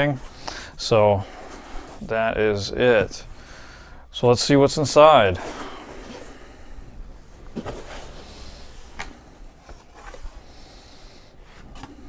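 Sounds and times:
cardboard scraping and rustling: 0:07.5 - 0:10.4.

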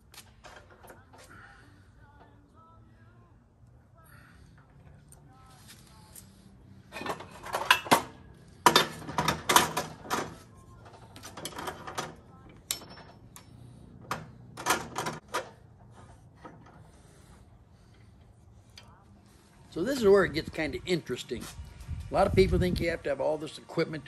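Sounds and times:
metal tools clacking: 0:06.9 - 0:16.8.

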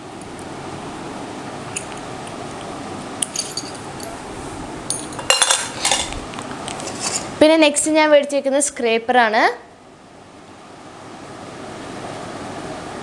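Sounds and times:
metal tips clinking in tin: 0:03.2 - 0:04.2.

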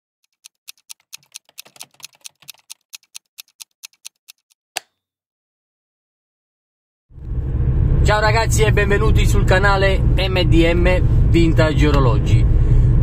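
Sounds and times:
clock ticking: 0:00.2 - 0:04.6.

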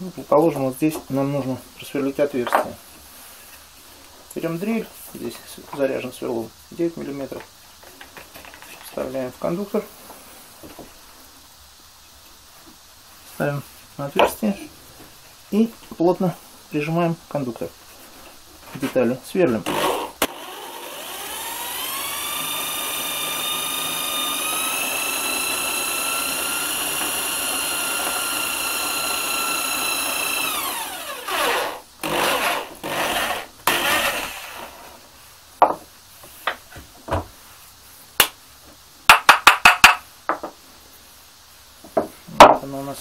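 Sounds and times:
electric drill boring into wood: 0:19.6 - 0:34.8.

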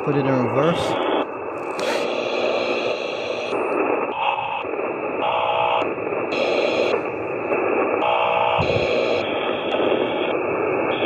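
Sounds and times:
radio static sweeping: 0:00.0 - 0:11.0
brief radio tones: 0:00.8 - 0:03.8.

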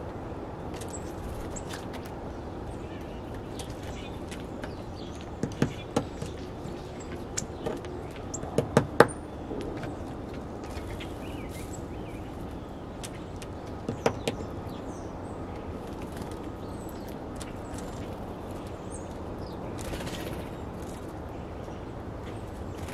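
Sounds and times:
woodpecker tapping on wood: 0:04.6 - 0:06.5, 0:07.1 - 0:09.9, 0:13.4 - 0:14.5.

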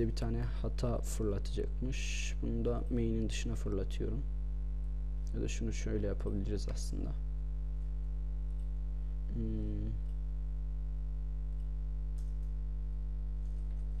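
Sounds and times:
electrical mains hum: 0:00.0 - 0:14.0
murmured vocal sound: 0:09.3 - 0:10.0
keyboard or mouse clicks: 0:11.6 - 0:12.6.

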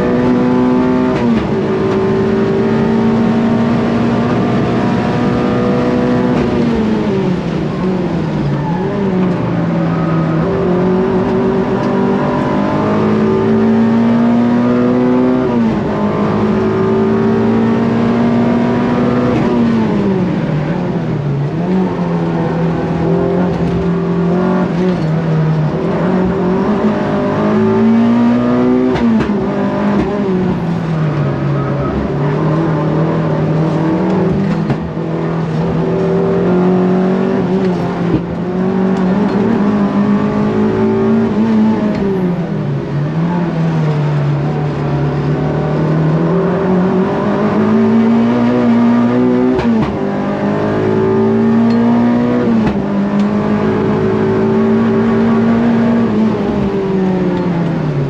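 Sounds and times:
car engine revving hard: 0:00.0 - 0:58.0.

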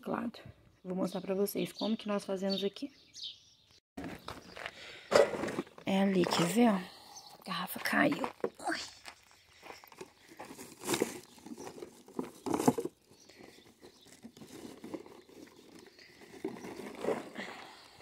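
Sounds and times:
plastic bags crinkling and rustling: 0:09.9 - 0:17.5.

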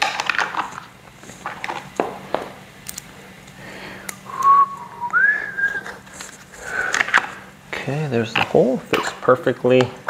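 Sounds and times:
person whistling: 0:04.3 - 0:06.0.

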